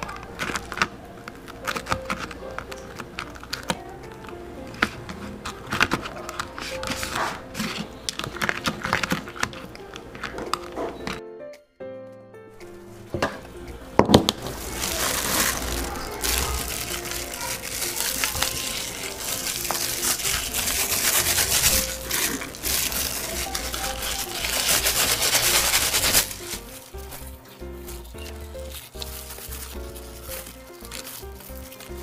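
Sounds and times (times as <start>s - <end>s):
plastic glove crinkling: 0.0s - 11.2s, 12.6s - 32.0s
soft background music: 0.0s - 32.0s
crushed peanuts scattering: 14.1s - 32.0s.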